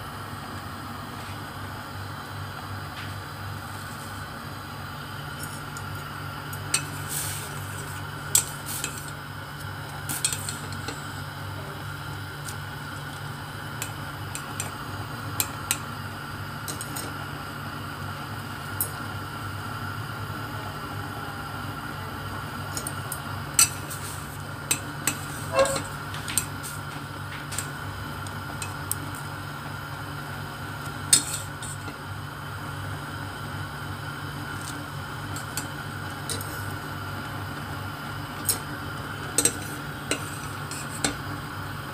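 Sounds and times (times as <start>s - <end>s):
noodles boiling: 0.0s - 41.9s
steady hum: 0.0s - 41.9s
chopsticks clinking on metal pot: 16.7s - 17.1s, 24.7s - 26.5s, 35.4s - 36.7s, 39.4s - 41.2s.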